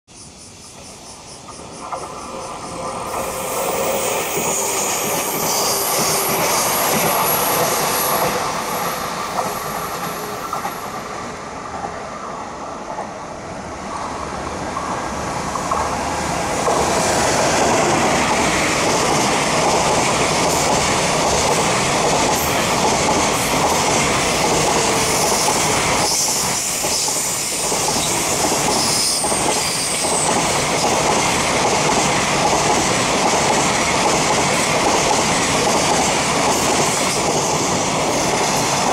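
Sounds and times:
electric locomotive passing: 0.2s - 38.9s
clickety-clack over rail joints: 1.4s - 13.2s, 13.8s - 38.9s
high-pitched wheel squeals: 2.4s - 8.3s.

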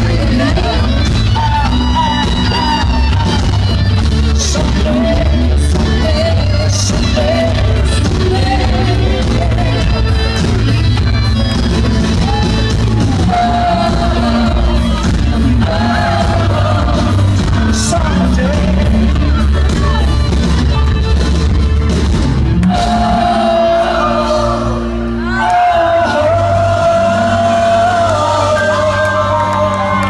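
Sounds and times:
male lead vocal singing: 0.0s - 2.9s, 4.3s - 10.7s, 13.1s - 20.1s, 22.6s - 30.0s
bass guitar: 0.0s - 30.0s
drum kit: 0.0s - 30.0s
electric guitar: 0.0s - 30.0s
keyboards: 0.0s - 30.0s.

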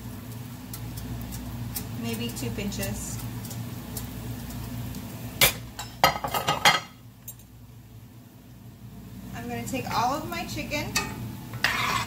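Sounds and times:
kitchenware clinking and knocking: 5.4s - 7.0s.

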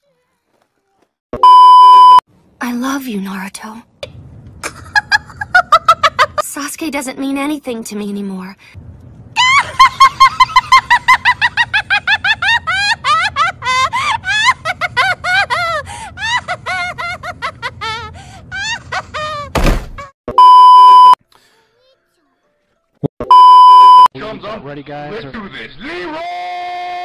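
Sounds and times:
censor bleep: 1.4s - 2.2s, 20.4s - 21.2s, 23.3s - 24.1s
high-pitched sped-up laughter: 9.4s - 19.5s
sharp thump: 19.6s - 20.0s.

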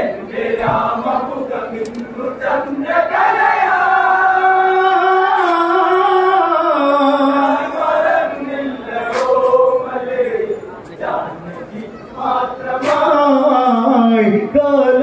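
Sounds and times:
person singing folk song: 0.0s - 10.5s.

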